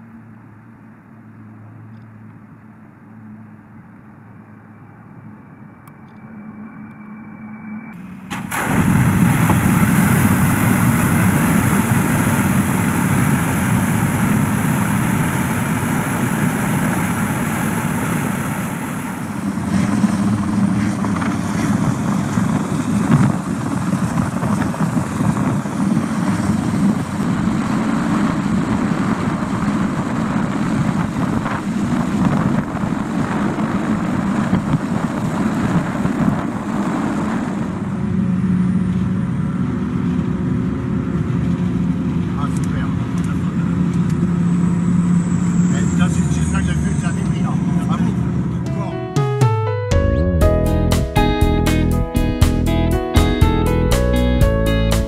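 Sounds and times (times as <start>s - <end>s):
jet turbines whining: 0.0s - 55.0s
helicopter hovering: 9.5s - 49.3s.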